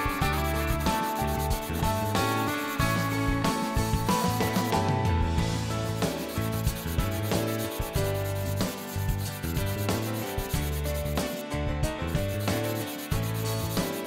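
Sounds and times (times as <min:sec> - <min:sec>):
pencil scratching on paper: 0:00.0 - 0:04.7, 0:05.9 - 0:11.4, 0:12.1 - 0:14.0
background music: 0:00.0 - 0:14.0.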